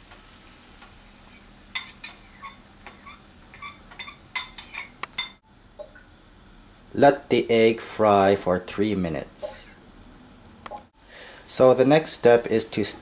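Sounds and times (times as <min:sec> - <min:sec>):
metal spoon scraping ceramic bowl: 0:01.3 - 0:05.4
faint hiss: 0:08.8 - 0:13.0.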